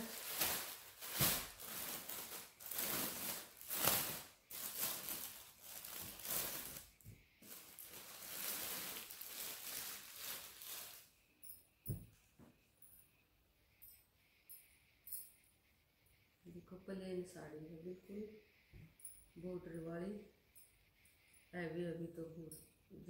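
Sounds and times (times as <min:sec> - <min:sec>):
plastic bags crinkling: 0:00.0 - 0:11.1.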